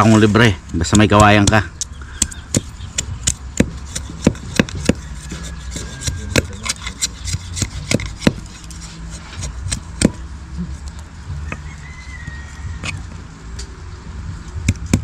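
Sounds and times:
machete scraping bamboo: 0:02.6 - 0:10.2, 0:12.8 - 0:13.1.

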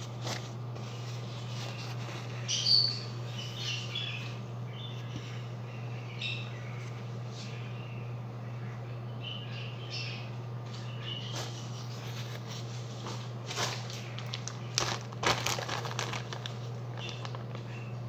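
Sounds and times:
crinkling and rustling: 0:00.0 - 0:02.5, 0:11.4 - 0:17.9.

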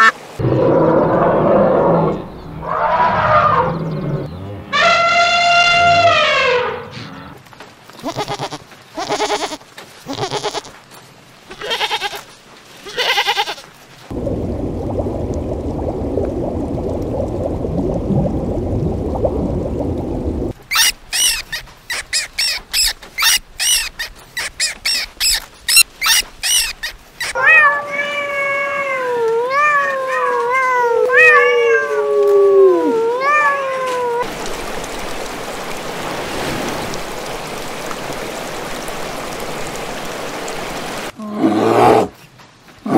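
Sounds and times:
shallow stream running: 0:07.4 - 0:41.2
goat bleating: 0:08.0 - 0:10.7, 0:11.5 - 0:12.2, 0:12.8 - 0:13.7
steady low noise: 0:14.1 - 0:20.6
cat meowing: 0:27.4 - 0:34.2.

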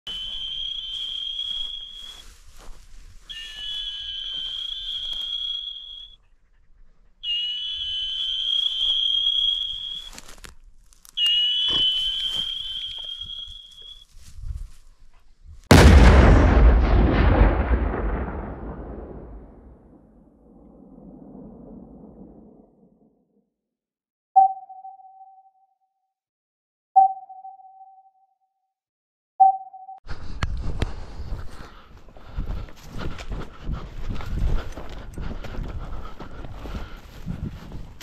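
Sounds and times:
long high-pitched tones: 0:03.2 - 0:06.2, 0:07.2 - 0:10.2, 0:11.2 - 0:14.1
explosion sound effect: 0:15.7 - 0:22.7.

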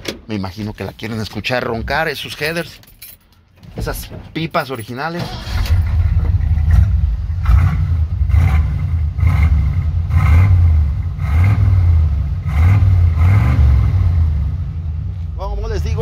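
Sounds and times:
pickup engine revving and idling: 0:05.7 - 0:15.2.

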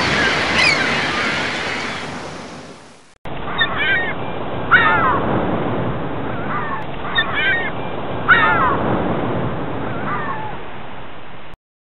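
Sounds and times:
waterbirds calling: 0:00.0 - 0:05.4, 0:06.2 - 0:09.0, 0:09.8 - 0:10.6
surf rushing: 0:00.0 - 0:11.6.

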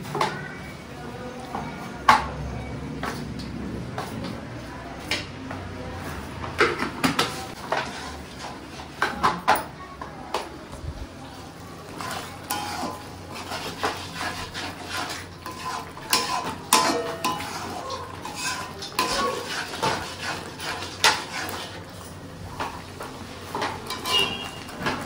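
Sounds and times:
metal spoon scraping pan: 0:12.0 - 0:22.7, 0:23.5 - 0:25.0
kitchen utensils knocking: 0:15.5 - 0:20.1, 0:23.5 - 0:25.0.

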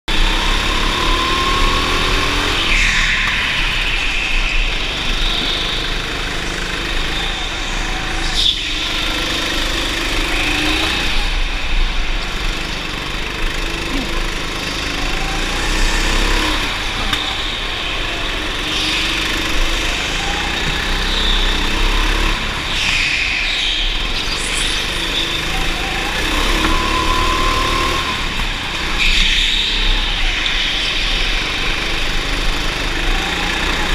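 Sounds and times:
go-kart engine revving: 0:00.0 - 0:33.9.

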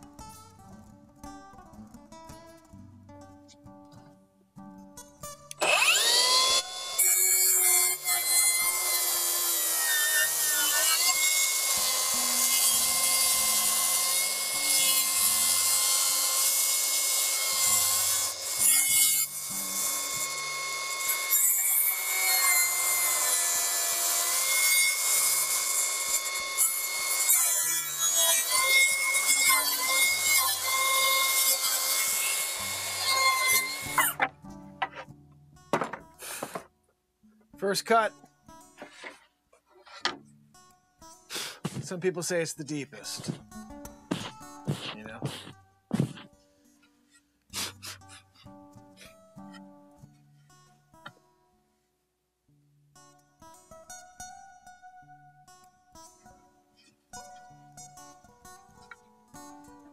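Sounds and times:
saw blade cutting wood: 0:05.5 - 0:35.1, 0:35.8 - 0:36.7, 0:38.8 - 0:39.2, 0:41.3 - 0:42.0, 0:43.0 - 0:43.5, 0:44.1 - 0:46.3
saw motor whine: 0:05.6 - 0:07.1.

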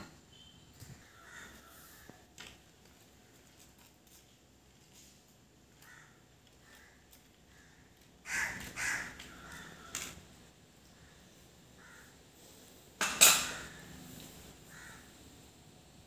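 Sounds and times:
crow cawing: 0:01.0 - 0:02.3, 0:05.8 - 0:10.2, 0:11.0 - 0:12.2, 0:14.7 - 0:15.2.

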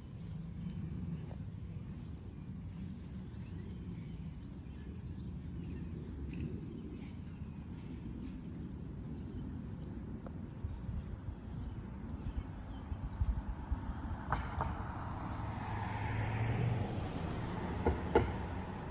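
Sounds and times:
steady low rumble: 0:00.0 - 0:14.3.

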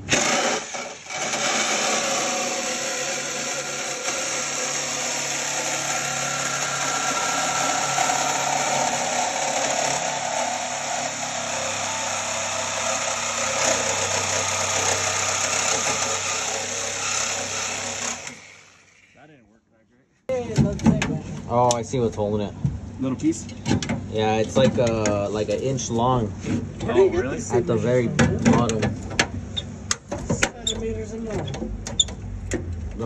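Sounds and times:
reciprocating saw cutting sheet metal: 0:00.0 - 0:19.1.

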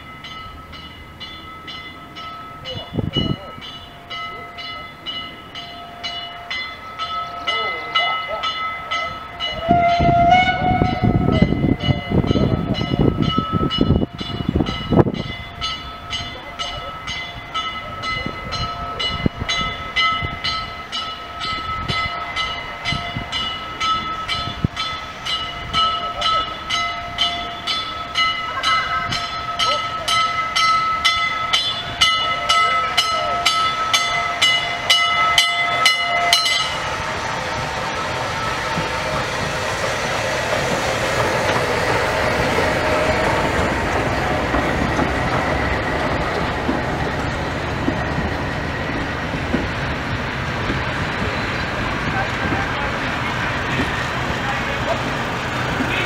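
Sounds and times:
steam locomotive exhaust beats: 0:00.0 - 0:56.0
train whistle: 0:09.5 - 0:11.5.

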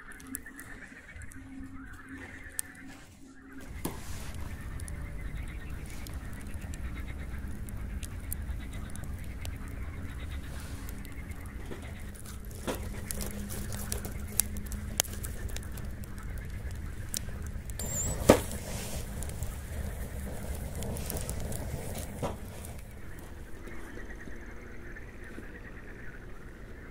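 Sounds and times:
distant ducks or geese calling: 0:00.0 - 0:26.9
low steady rumble: 0:03.6 - 0:26.9
faint high bird chirps: 0:17.8 - 0:18.6.

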